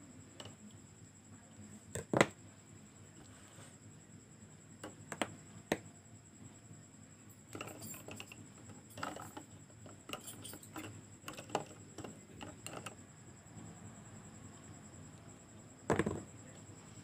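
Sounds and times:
small parts clicking in glass jar: 0:07.5 - 0:09.4, 0:10.0 - 0:13.0.

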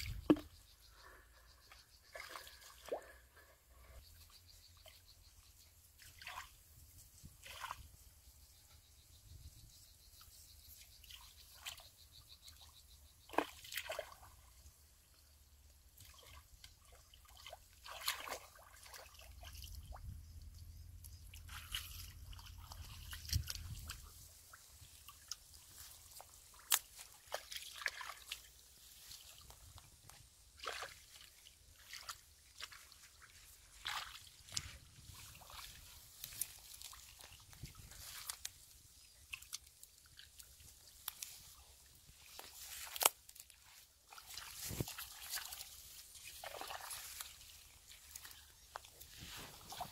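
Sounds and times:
hands splashing in muddy water: 0:13.3 - 0:14.4, 0:16.0 - 0:20.0, 0:21.1 - 0:29.8, 0:30.5 - 0:41.6, 0:42.2 - 0:49.9
feet wading in mud: 0:16.0 - 0:19.8, 0:21.3 - 0:49.9.

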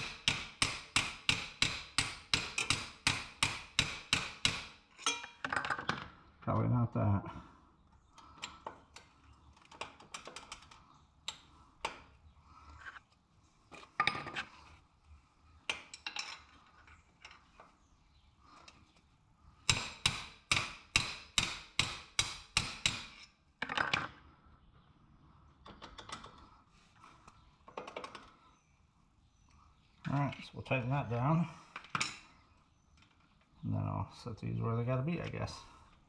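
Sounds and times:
metal hand tools clinking: 0:05.0 - 0:05.5.

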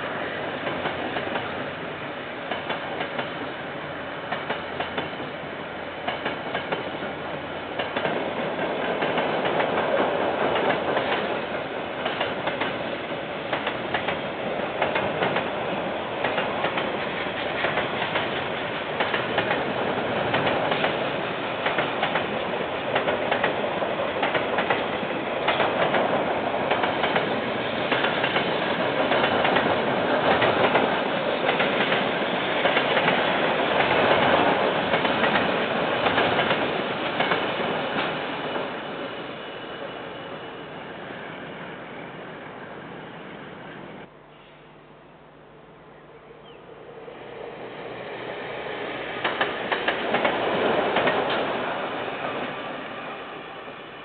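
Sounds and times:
train wagons rumbling: 0:06.0 - 0:40.3, 0:48.2 - 0:52.8
wheels clicking over rail joints: 0:16.2 - 0:21.0, 0:21.6 - 0:38.2, 0:49.2 - 0:51.6.

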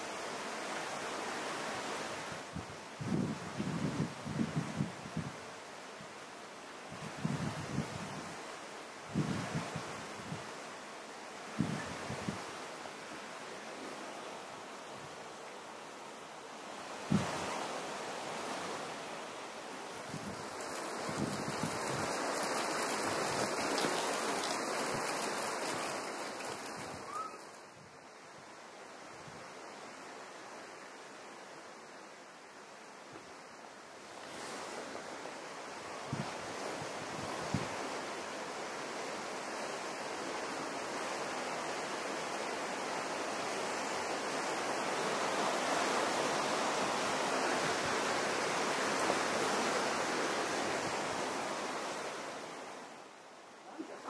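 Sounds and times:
running water rushing: 0:08.4 - 0:29.0, 0:33.7 - 0:54.0.

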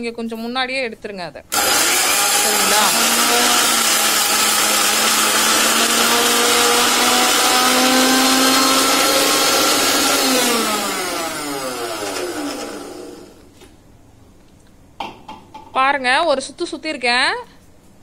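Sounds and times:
mixer grinder motor whine: 0:01.5 - 0:13.5.

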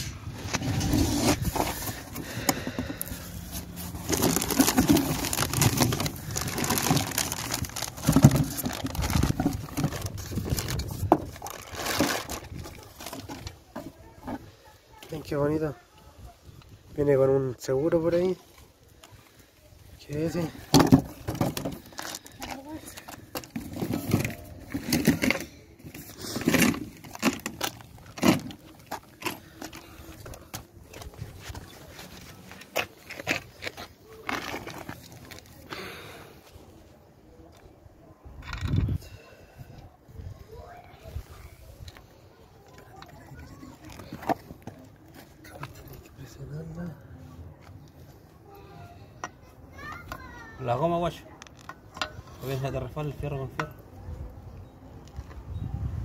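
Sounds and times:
knocks and scrapes of handled parts: 0:00.0 - 0:14.5, 0:20.2 - 0:35.5, 0:51.4 - 0:52.8
cardboard box rustling: 0:00.3 - 0:14.4
plastic wrapping crinkling: 0:03.4 - 0:13.5.

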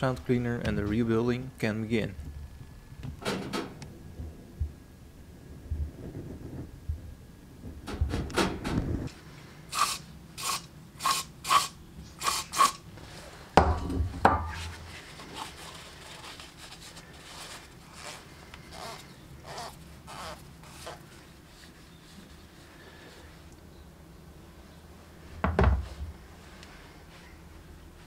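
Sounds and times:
aerosol spray can hissing: 0:09.7 - 0:12.8
handling and rubbing metal parts: 0:09.7 - 0:23.5
heavy knock on wooden workbench: 0:25.4 - 0:25.9.

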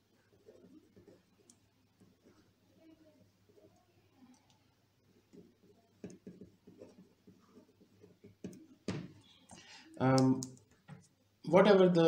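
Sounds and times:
pen scratching on paper: 0:00.0 - 0:02.5, 0:05.1 - 0:08.8.

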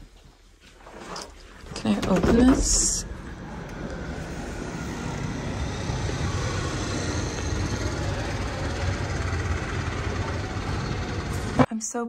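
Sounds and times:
city street traffic hum: 0:03.0 - 0:11.7.

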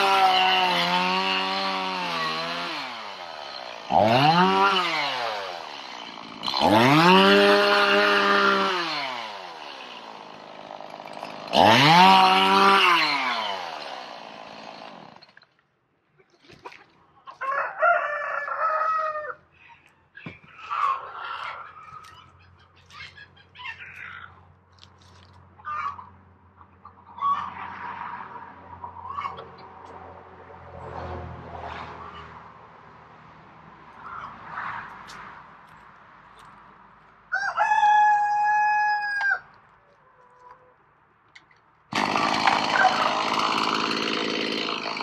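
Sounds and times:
chainsaw revving: 0:00.0 - 0:15.4, 0:41.9 - 0:45.0
chickens clucking: 0:16.1 - 0:17.6, 0:19.7 - 0:24.4, 0:25.6 - 0:27.6, 0:28.8 - 0:29.7
rooster crowing: 0:17.4 - 0:19.4, 0:37.3 - 0:39.6, 0:42.7 - 0:43.2.

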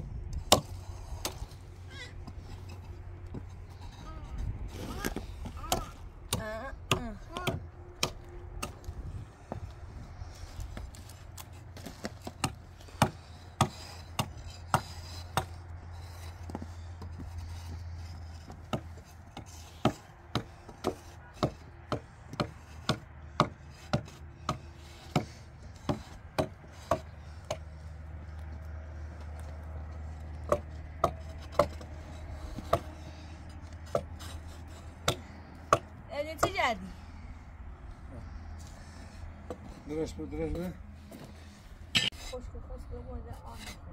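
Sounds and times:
low steady hum: 0:00.0 - 0:21.8.

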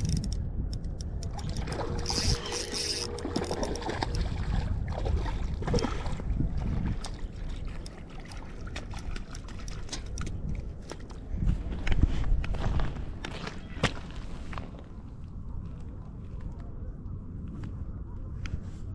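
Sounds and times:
steady low rumble: 0:00.0 - 0:13.3.

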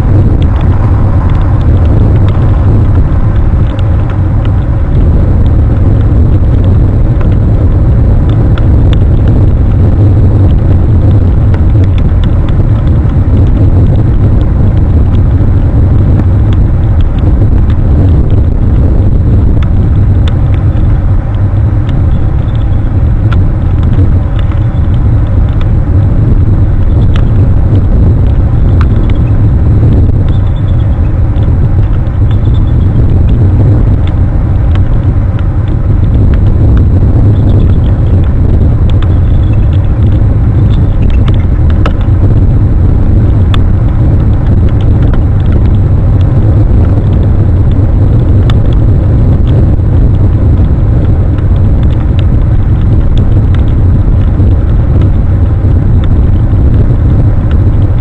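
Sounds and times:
wind buffeting microphone: 0:00.0 - 0:58.0
faint clicks: 0:19.6 - 0:25.8, 0:26.8 - 0:29.3, 0:30.0 - 0:42.5.

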